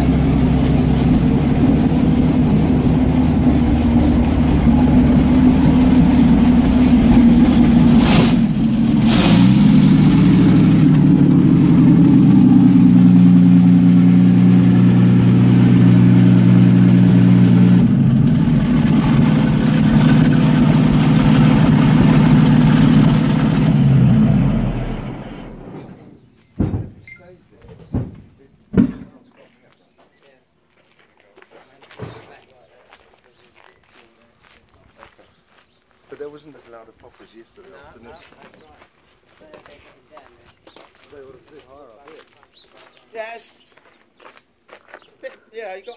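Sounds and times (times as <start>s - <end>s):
tank engine running: 0.0s - 26.1s
sharp knocks: 26.6s - 27.0s, 27.6s - 29.2s.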